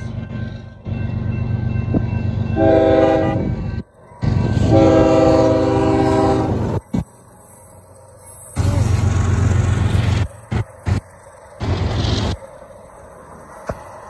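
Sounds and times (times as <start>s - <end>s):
locomotive air horn blasts: 2.6s - 3.6s, 4.5s - 6.8s.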